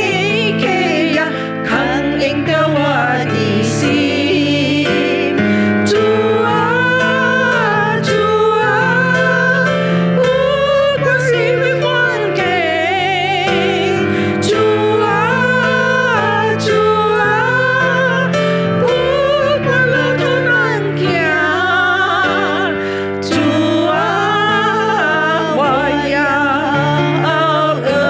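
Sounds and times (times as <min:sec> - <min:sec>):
instrumental accompaniment: 0:00.0 - 0:28.0
women singing worship song: 0:00.0 - 0:28.0.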